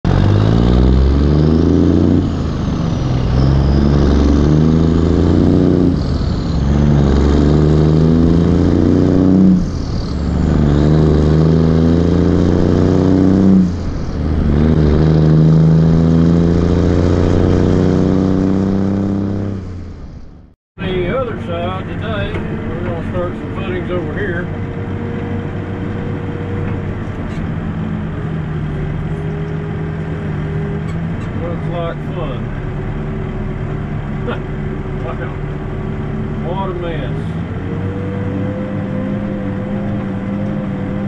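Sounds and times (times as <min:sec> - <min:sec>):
truck diesel engine revving through gears: 0:00.0 - 0:41.0.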